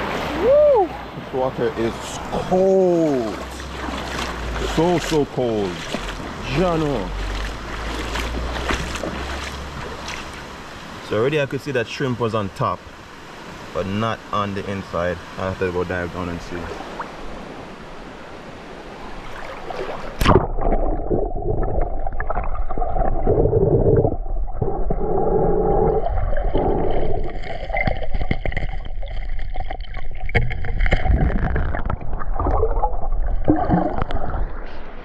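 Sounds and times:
underwater bubbling: 19.1s - 35.0s.

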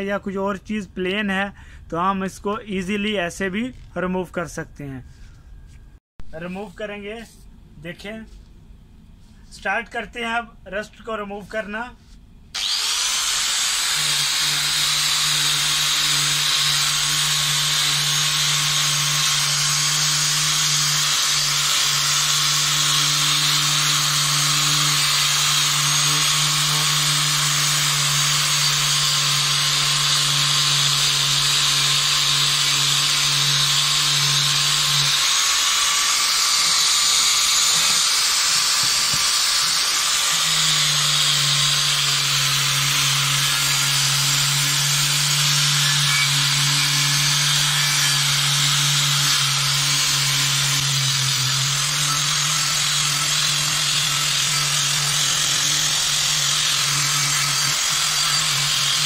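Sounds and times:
angle grinder running: 12.6s - 59.0s.

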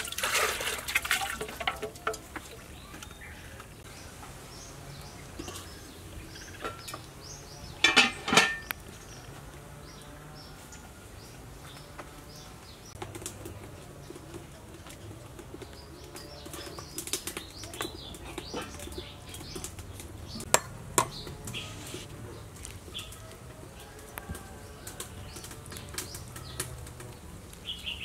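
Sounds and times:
spoon scraping plastic bowl: 20.4s - 22.1s.

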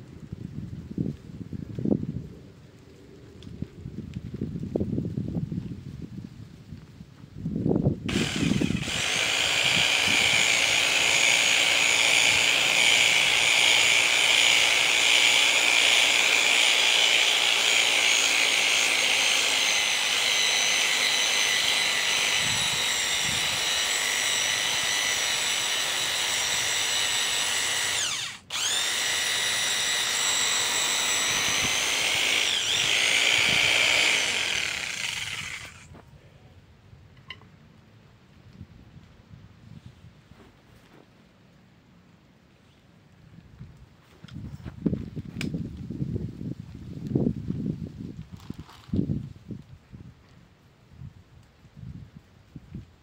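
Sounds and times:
power tool high whine: 8.1s - 35.9s.

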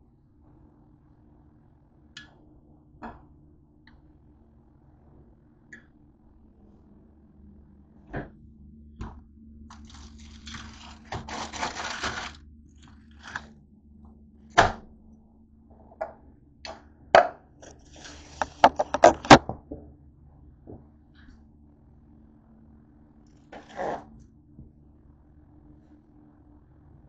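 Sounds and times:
steady low hum: 0.0s - 27.0s
plastic packaging rustling: 9.7s - 13.5s, 17.6s - 19.4s.

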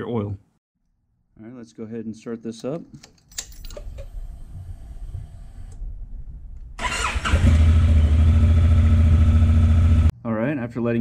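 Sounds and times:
motorcycle starter cranking: 6.8s - 8.0s
motorcycle engine idling: 7.4s - 10.1s.

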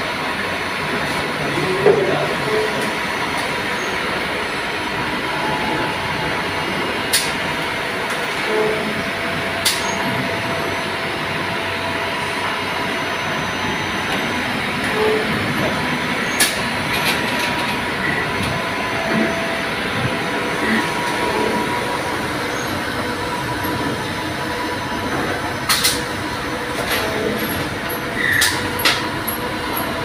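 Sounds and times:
workshop machinery drone: 0.0s - 30.0s.

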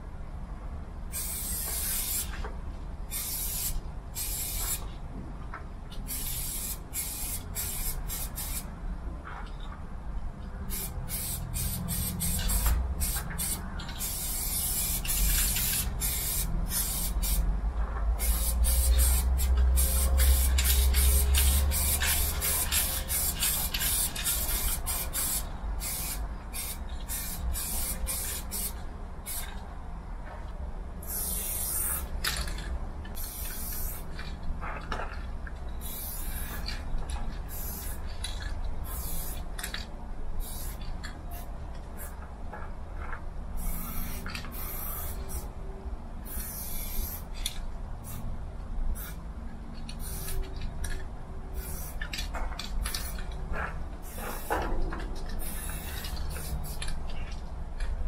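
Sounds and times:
spray paint can hissing: 1.1s - 2.4s, 3.1s - 4.9s, 6.0s - 8.7s, 10.7s - 17.4s, 18.2s - 29.5s, 31.0s - 32.6s, 33.2s - 34.1s, 35.8s - 36.8s, 37.5s - 38.0s, 38.8s - 39.4s, 40.4s - 42.2s, 43.6s - 45.5s, 46.2s - 48.2s, 49.0s - 49.2s, 49.9s - 50.6s, 51.5s - 53.3s, 54.0s - 54.6s, 55.4s - 57.0s.

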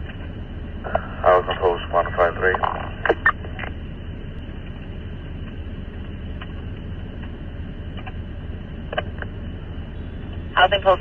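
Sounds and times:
low hum: 0.0s - 11.0s
radio hiss: 0.8s - 3.8s.

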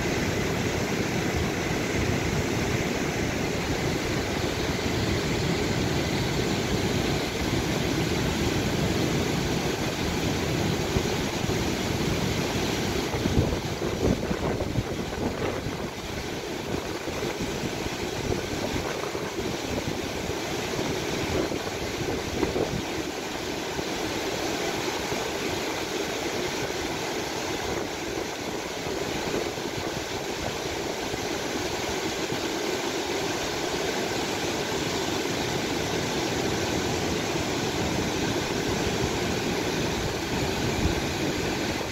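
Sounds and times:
wind rumbling on microphone: 0.0s - 23.1s, 37.0s - 41.9s
river rushing over rocks: 0.0s - 41.9s.

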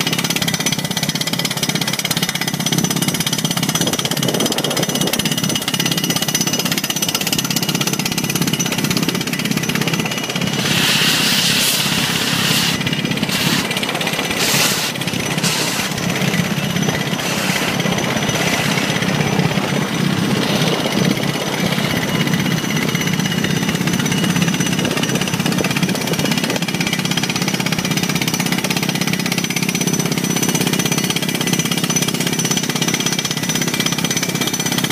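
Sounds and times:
drill rigs hammering rock: 0.0s - 34.9s
bursts of hiss: 10.4s - 16.4s, 17.2s - 19.0s.

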